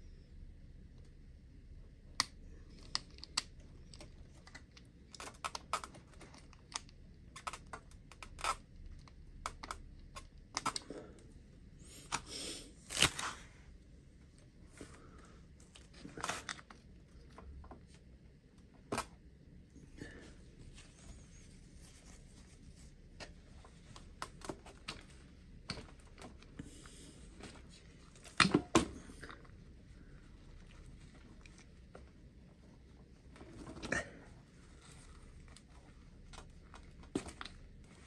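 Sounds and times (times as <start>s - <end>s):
small plastic clicks: 2.1s - 10.9s.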